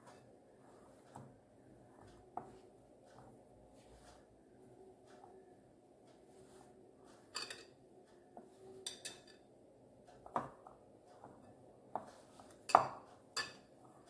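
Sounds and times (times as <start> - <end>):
dough knocking on glass bowl: 12.0 - 13.6.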